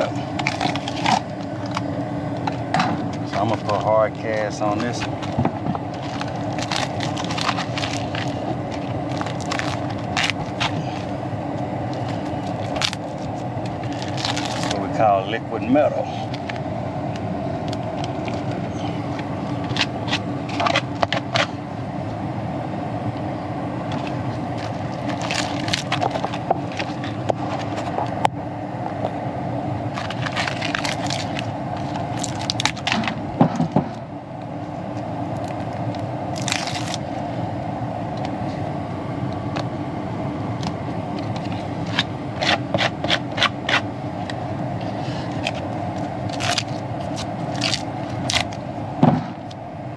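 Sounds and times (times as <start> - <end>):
foil tape crinkling: 0.0 - 1.9, 4.6 - 11.2, 11.9 - 14.9, 17.6 - 21.6, 23.9 - 28.2, 29.9 - 33.2, 35.4 - 37.1, 40.6 - 44.4, 45.0 - 48.6
steady hum: 0.0 - 49.9.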